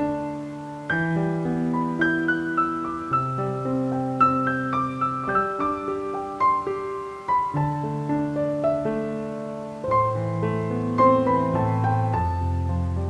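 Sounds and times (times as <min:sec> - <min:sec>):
slow piano music: 0:00.0 - 0:13.0.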